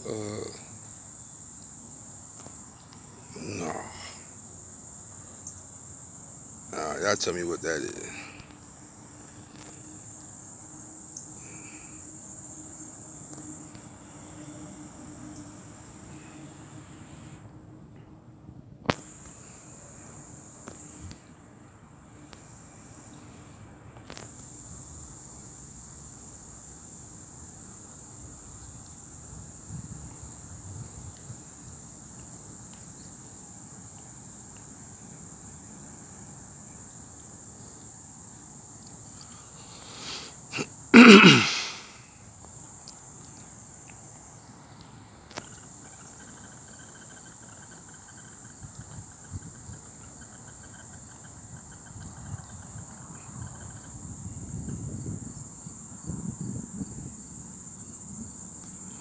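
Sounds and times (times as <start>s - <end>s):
insect chirring: 0.0s - 17.5s, 18.8s - 21.4s, 22.1s - 59.0s
loud short burst of noise: 41.0s - 42.0s.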